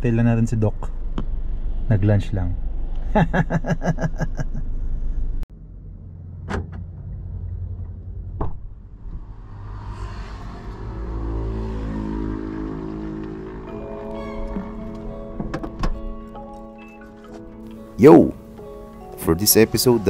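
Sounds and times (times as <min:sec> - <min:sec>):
low vehicle rumble: 0:00.0 - 0:19.1
music with held notes: 0:13.6 - 0:20.0.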